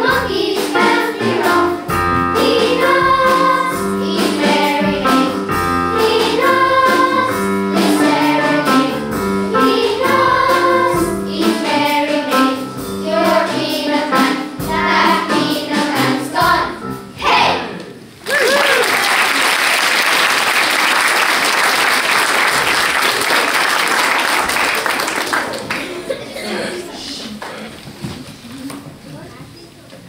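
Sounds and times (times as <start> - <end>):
children's choir singing: 0.0 - 18.0.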